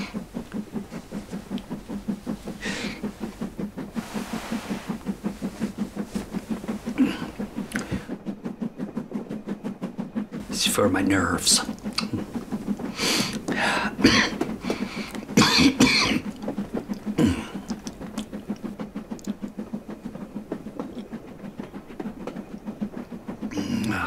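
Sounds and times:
railway carriage clicking and rumbling: 0.0s - 24.0s
man coughing: 15.4s - 16.2s, 17.2s - 17.6s.

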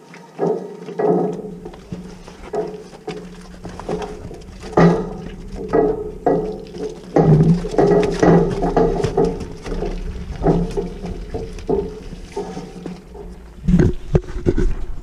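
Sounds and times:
animals knocking against crush: 0.4s - 14.6s
cattle bawling: 1.0s - 13.6s.

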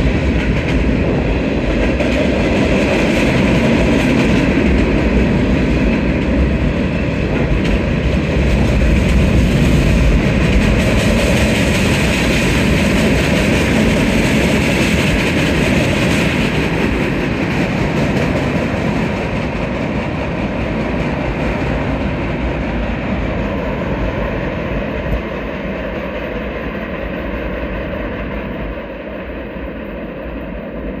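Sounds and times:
train wheels rolling on rails: 0.0s - 31.0s.

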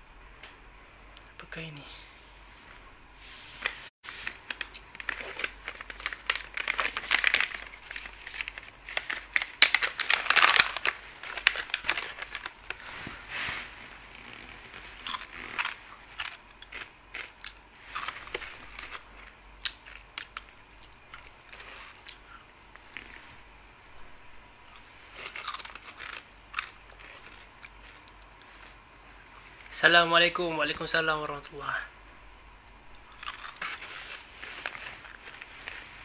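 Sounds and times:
crisps crunching: 3.6s - 23.4s, 24.7s - 29.8s, 33.0s - 36.0s
plastic snack packet crinkling: 4.1s - 12.9s, 14.2s - 22.3s, 25.2s - 28.8s, 33.1s - 35.9s.

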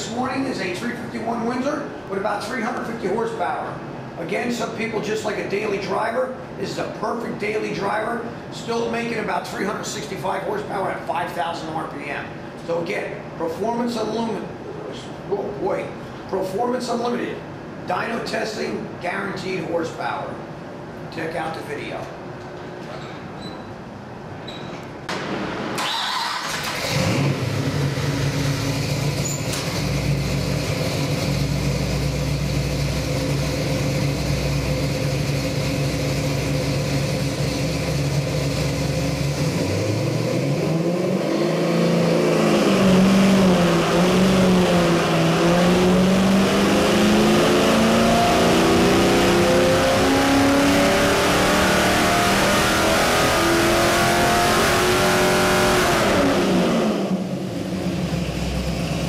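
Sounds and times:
engine idling and revving: 25.1s - 59.0s.

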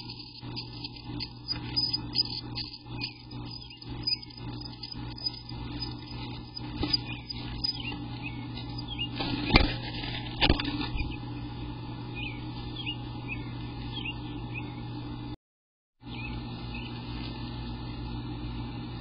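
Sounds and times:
high bird chirps: 0.0s - 9.2s
steady low hum: 0.0s - 15.4s, 16.0s - 19.0s.

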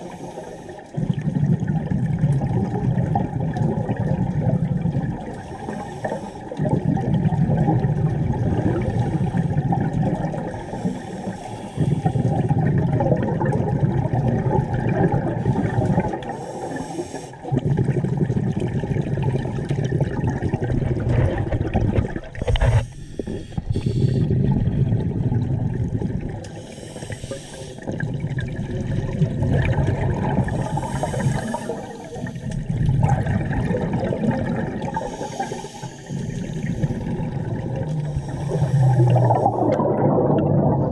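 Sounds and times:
regulator inhalation hiss: 0.0s - 0.9s, 5.4s - 6.6s, 10.6s - 12.3s, 16.3s - 17.4s, 22.5s - 24.3s, 26.5s - 27.9s, 30.4s - 32.6s, 35.0s - 37.2s, 38.0s - 39.6s
exhaled bubbles rushing underwater: 0.0s - 40.9s.

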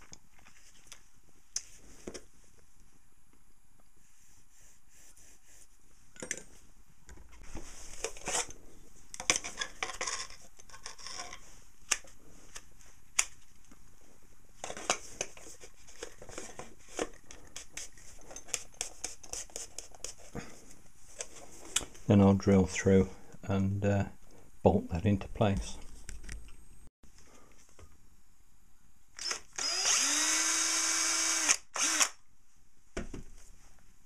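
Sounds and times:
scrapes and rustles of handling: 0.0s - 3.0s, 3.8s - 22.2s.

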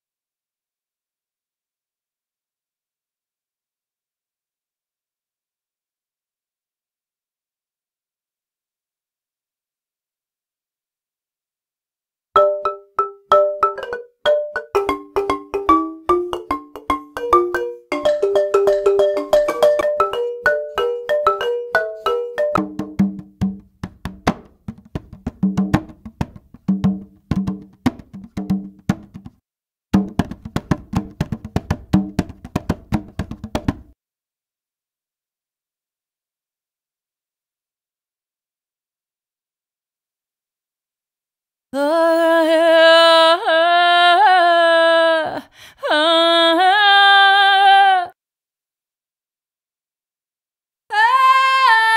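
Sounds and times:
balafon melody: 12.4s - 29.4s, 30.0s - 34.0s
drum loops: 22.0s - 29.4s, 30.0s - 33.9s.

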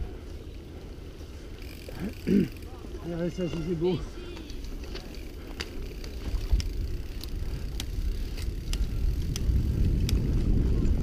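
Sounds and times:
bike rattling over bumps: 0.0s - 11.0s
tyres on dirt: 0.0s - 11.0s
wind rumble on microphone: 6.1s - 11.0s.

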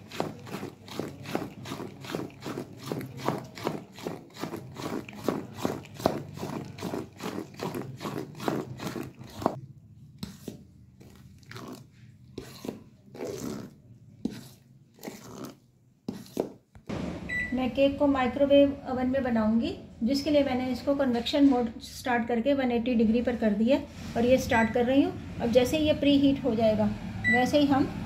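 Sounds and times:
metal spoon beating batter in bowl: 0.0s - 16.9s.

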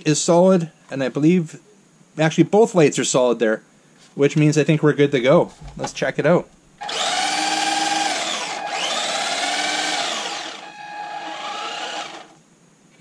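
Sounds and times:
electric motor and gearbox whining: 6.8s - 12.4s.

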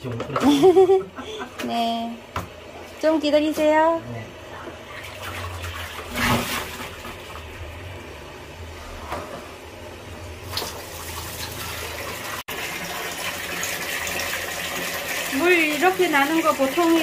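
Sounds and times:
water running into plastic basin: 4.8s - 7.6s, 10.4s - 17.0s.

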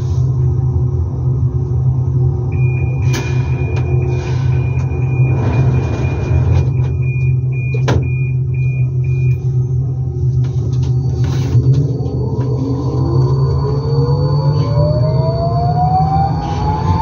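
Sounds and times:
train low hum: 0.0s - 17.0s
high warning tone beeping: 2.5s - 17.0s.

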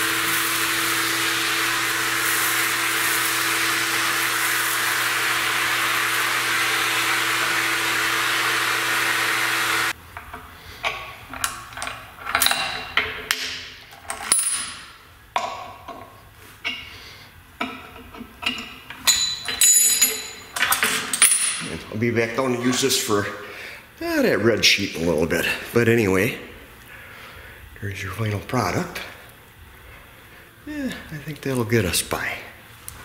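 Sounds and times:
shop vacuum humming: 0.0s - 10.0s
metal parts clinking on steel table: 11.3s - 14.9s, 18.4s - 21.7s.

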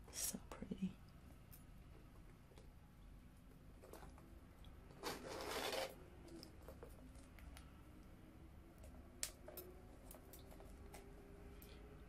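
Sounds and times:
zipper pulled: 5.0s - 6.0s.

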